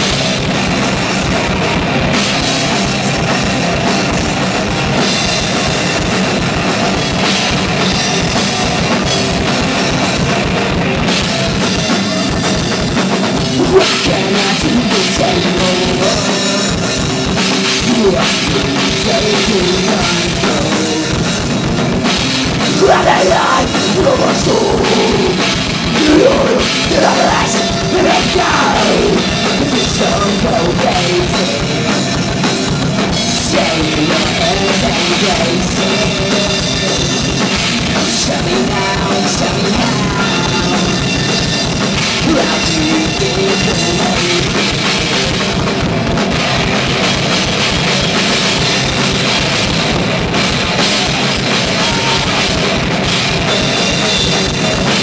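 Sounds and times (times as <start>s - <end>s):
bass guitar: 0.0s - 55.0s
drum kit: 0.0s - 55.0s
electric guitars: 0.0s - 55.0s
person singing: 13.4s - 17.1s, 17.7s - 21.4s, 22.6s - 32.1s, 33.1s - 41.2s, 42.2s - 45.4s, 50.8s - 52.8s.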